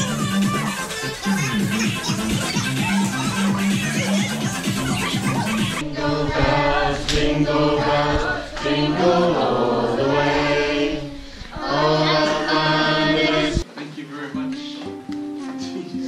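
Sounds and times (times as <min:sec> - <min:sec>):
choir singing wordless chords: 0:05.6 - 0:13.6.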